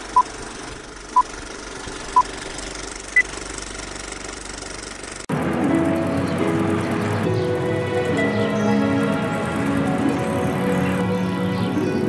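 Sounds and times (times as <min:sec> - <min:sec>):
steady noise: 0:00.0 - 0:12.0
music: 0:05.3 - 0:12.0.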